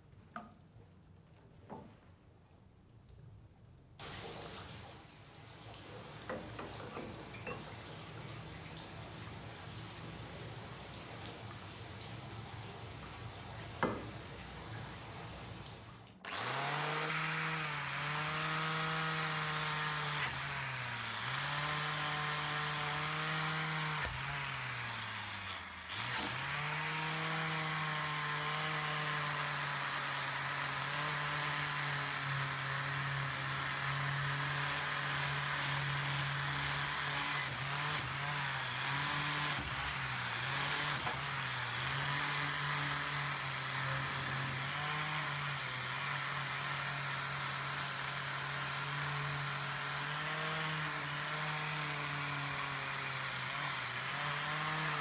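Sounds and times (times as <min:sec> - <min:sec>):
wire brush power tool whining: 0:16.2 - 0:55.0.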